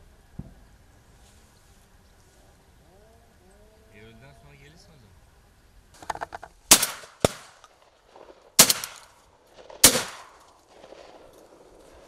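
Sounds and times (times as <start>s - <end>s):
shotgun shots with echo: 6.7s - 7.6s, 8.6s - 11.2s.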